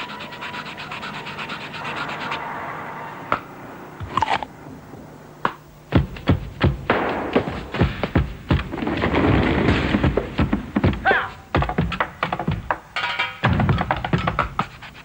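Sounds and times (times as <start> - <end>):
steady tone: 0.0 - 5.9
fast rattling rhythm: 10.0 - 15.0.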